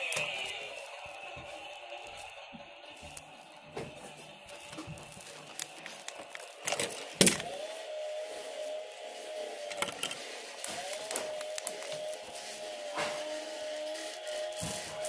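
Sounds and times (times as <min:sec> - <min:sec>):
small electric motor whining: 0:00.0 - 0:15.0.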